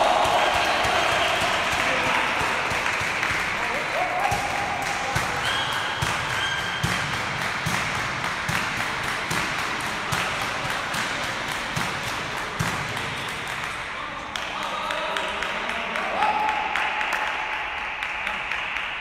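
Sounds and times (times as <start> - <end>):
table tennis balls bouncing: 0.0 - 13.9
murmur in sports hall: 0.0 - 19.0.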